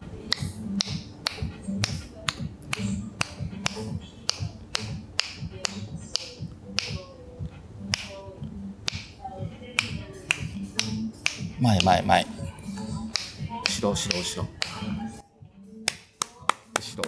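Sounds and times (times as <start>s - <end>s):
sharp finger snaps: 0.3s - 7.1s, 7.9s - 8.2s, 8.8s - 9.2s, 9.8s - 12.0s, 12.8s - 14.9s, 15.8s - 17.0s.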